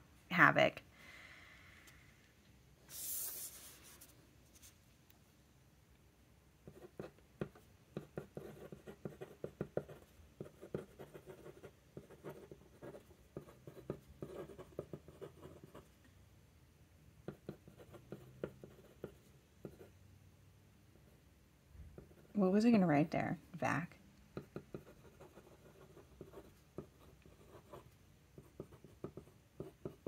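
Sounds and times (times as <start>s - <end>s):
fountain pen scratching on paper: 6.7s - 15.9s, 17.3s - 19.9s, 24.4s - 30.0s.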